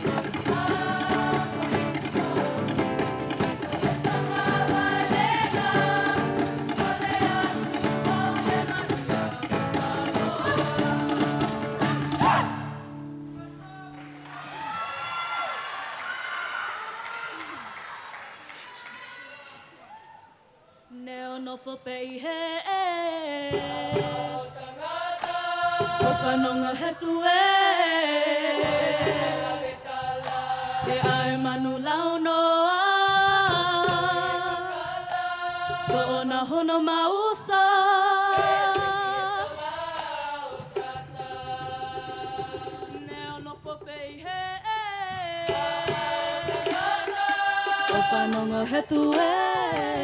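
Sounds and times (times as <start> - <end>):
girls' choir singing: 0.0 - 13.0, 23.4 - 44.2, 45.2 - 50.0
percussion strokes: 0.0 - 13.4, 38.2 - 50.0.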